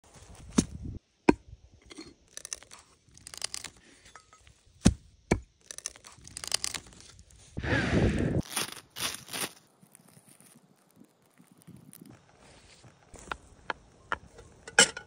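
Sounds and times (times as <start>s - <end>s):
blade cutting into log: 2.3s - 3.8s, 4.8s - 7.2s
footsteps on dry forest litter: 8.4s - 13.7s.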